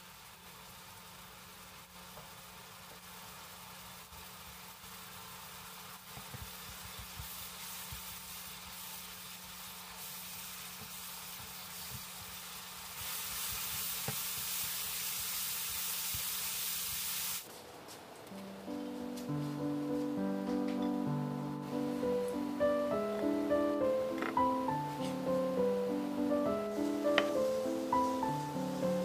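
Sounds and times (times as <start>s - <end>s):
meat sizzling in a pan: 0.0s - 17.5s, 21.6s - 29.0s.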